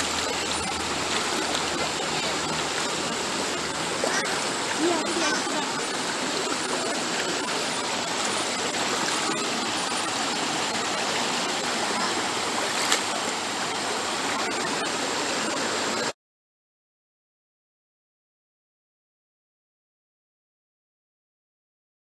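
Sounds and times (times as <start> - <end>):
river rushing over rocks: 0.0 - 16.1.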